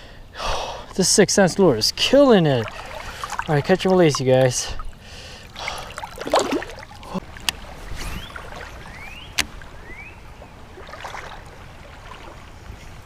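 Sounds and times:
river water washing: 0.8s - 13.0s
fish splashing in water: 2.3s - 12.6s.

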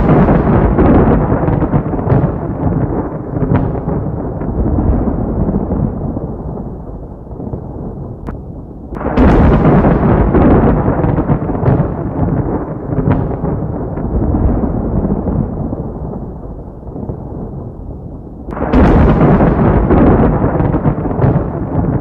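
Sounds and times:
rumble of explosions: 0.0s - 22.0s
sharp cracks: 8.2s - 12.0s, 18.5s - 22.0s.

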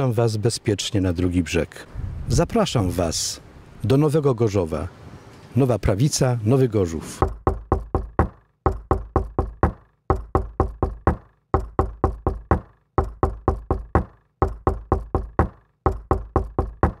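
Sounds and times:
rhythmic ringing knocks: 7.2s - 17.0s.

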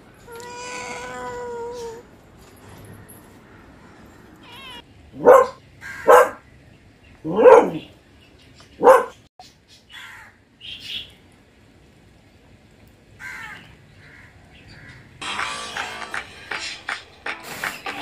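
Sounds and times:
cat meowing: 0.3s - 2.1s, 4.4s - 4.8s.

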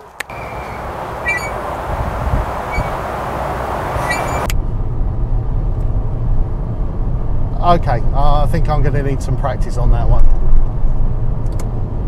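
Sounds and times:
engine and tyre drone: 0.0s - 12.0s
road and wind noise: 0.0s - 12.0s.

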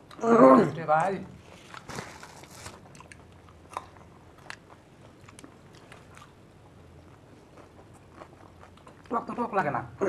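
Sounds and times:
crunchy snack being chewed: 1.4s - 9.4s.

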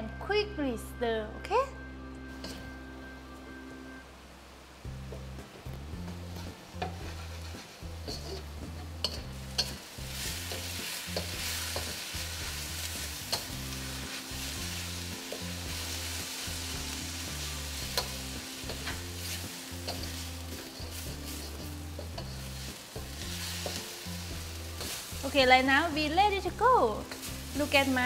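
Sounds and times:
food sizzling in a wok: 2.3s - 3.0s, 4.4s - 28.0s
background music with bass line: 4.8s - 28.0s
spatula scraping pan: 6.3s - 12.6s, 17.8s - 25.2s.

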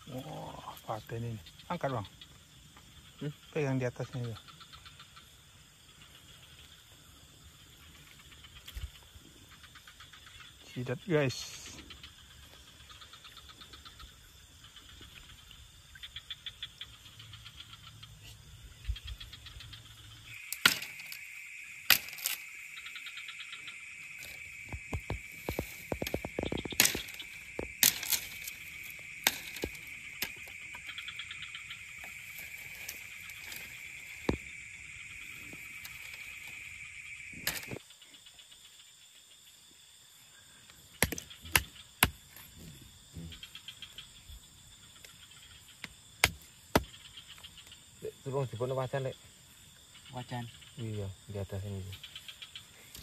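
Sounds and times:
faint insect buzzing: 0.0s - 53.0s
insect high-pitched trill: 0.0s - 53.0s
sharp clicks and knocks: 24.2s - 28.6s.

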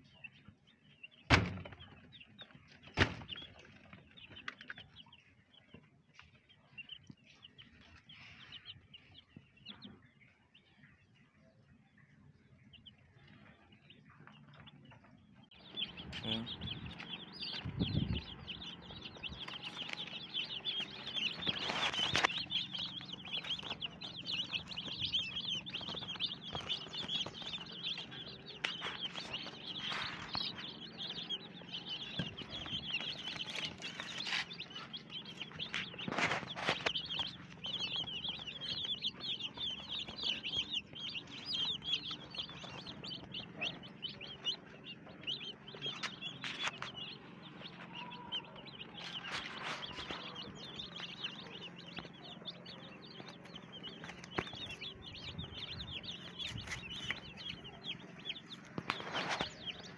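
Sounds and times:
chicks peeping: 0.0s - 59.9s
loud rustles: 16.1s - 43.6s.

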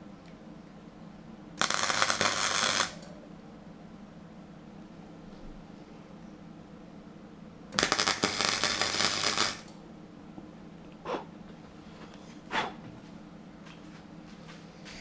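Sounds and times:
welder arc crackling: 1.6s - 3.1s, 7.7s - 9.8s.

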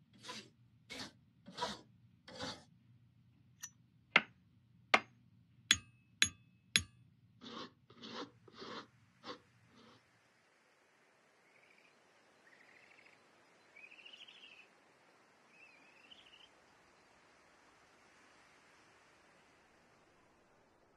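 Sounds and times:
hand file rasping on metal: 0.2s - 2.7s, 5.7s - 9.4s.

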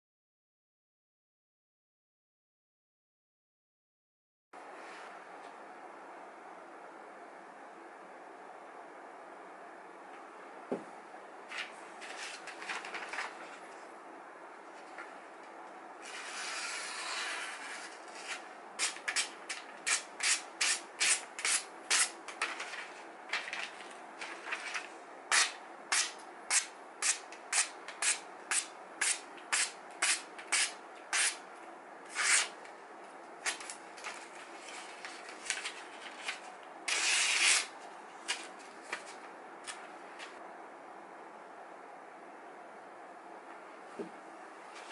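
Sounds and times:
paper rustling: 11.5s - 13.9s, 21.4s - 25.5s, 33.4s - 40.4s
knife slicing paper: 16.0s - 22.8s, 32.1s - 32.6s, 34.6s - 38.5s.

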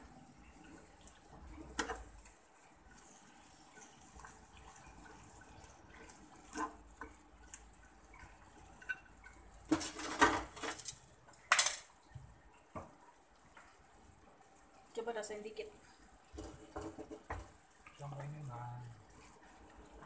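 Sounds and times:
sauce simmering hiss: 0.0s - 10.2s, 12.0s - 20.0s
spoon scraping a frying pan: 5.9s - 11.0s.

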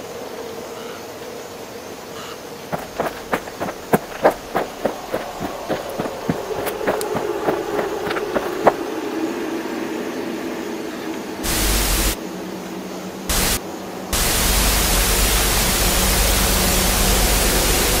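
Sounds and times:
static hiss: 11.4s - 12.2s, 13.3s - 18.0s.

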